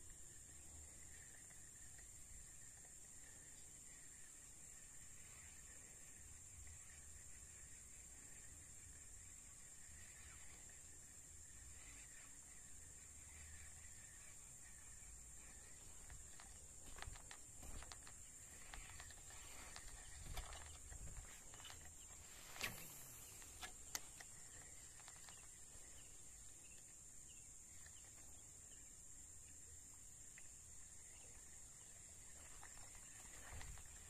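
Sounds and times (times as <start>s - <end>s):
high-pitched insect drone: 0.3s - 28.9s
faint clicks: 15.4s - 27.0s.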